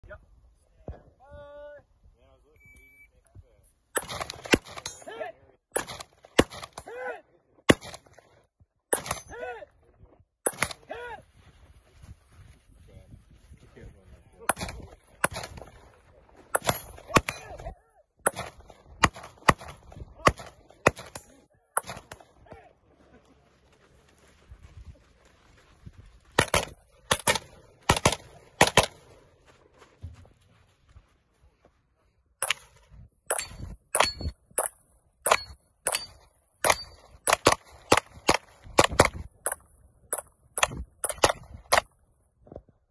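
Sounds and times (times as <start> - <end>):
short ringing tone: 2.6 - 3.2
gunshots: 4.0 - 5.0, 5.7 - 6.9, 7.6 - 8.2, 8.9 - 9.4, 10.4 - 10.9, 14.5 - 15.9, 16.5 - 22.5, 26.3 - 29.1, 33.3 - 41.9.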